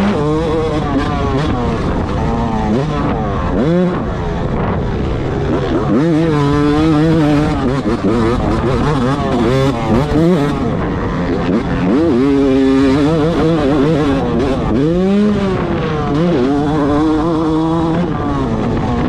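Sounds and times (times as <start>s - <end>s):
motocross engine revving: 0.0s - 19.0s.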